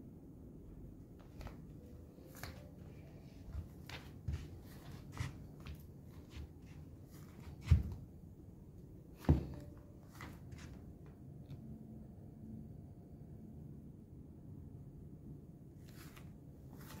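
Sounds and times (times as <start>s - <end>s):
slow footsteps: 1.2s - 8.2s.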